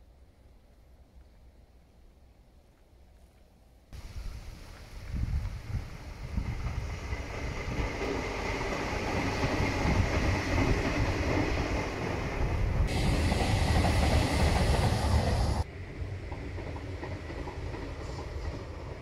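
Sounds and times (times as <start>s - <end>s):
electric train passing on tracks: 4.0s - 19.0s.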